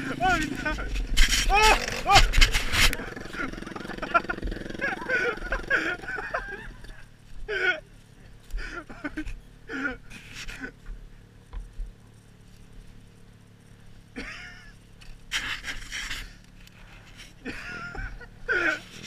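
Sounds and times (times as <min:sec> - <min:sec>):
dirt bike engine idling: 0:00.0 - 0:19.0
person panting hard: 0:08.4 - 0:09.0.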